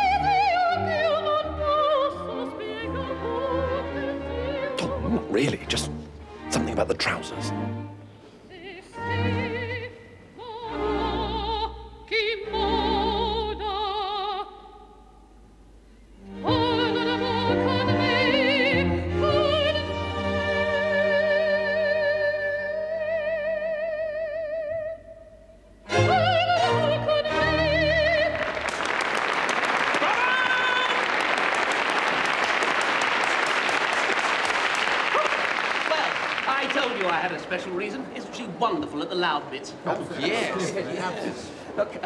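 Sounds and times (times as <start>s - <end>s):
woman singing opera: 0.0s - 4.8s, 8.5s - 14.9s, 16.4s - 25.3s, 25.9s - 28.6s, 30.0s - 31.1s
orchestra playing: 2.3s - 8.2s, 25.9s - 28.4s
audience applause: 28.3s - 37.7s.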